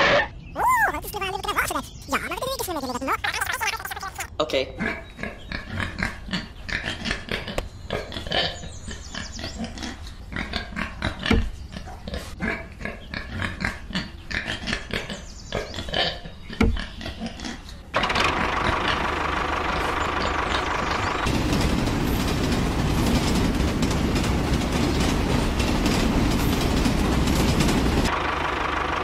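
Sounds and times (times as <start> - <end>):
pigs grunting and oinking: 2.8 - 17.9
steady mechanical running sound: 18.0 - 29.0.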